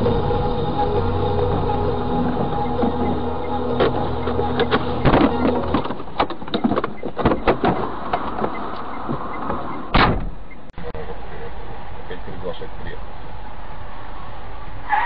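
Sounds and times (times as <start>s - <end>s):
car engine and road hum: 0.0s - 15.0s
knocks and rattles: 2.3s - 10.4s.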